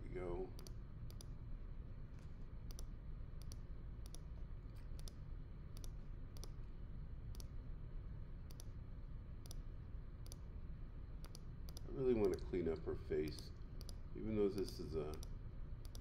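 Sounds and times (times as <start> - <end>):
low room hum: 0.0 - 16.0
computer mouse clicking: 0.6 - 1.3, 2.7 - 5.2, 5.8 - 6.6, 7.3 - 7.5, 8.5 - 8.8, 10.2 - 10.4, 11.2 - 12.5, 13.2 - 14.0, 14.6 - 16.0.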